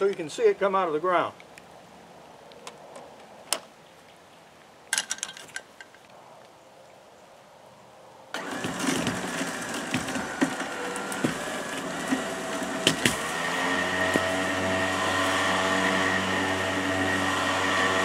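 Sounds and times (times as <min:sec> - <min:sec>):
wood cracking: 0:08.4 - 0:16.3
electric winch running: 0:08.4 - 0:18.0.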